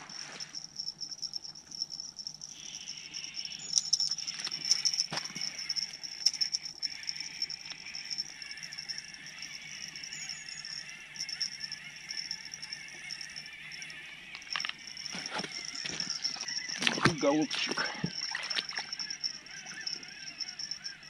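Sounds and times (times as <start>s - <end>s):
insect chirring: 0.0s - 21.0s
clicks and rustles: 14.3s - 19.9s.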